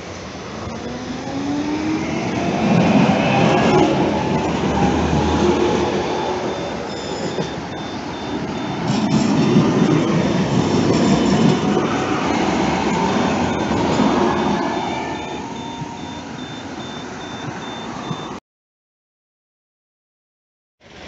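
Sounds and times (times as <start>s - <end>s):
tram wheels grinding on rails: 0.0s - 18.4s
high electronic beep: 6.4s - 12.1s, 13.0s - 18.4s.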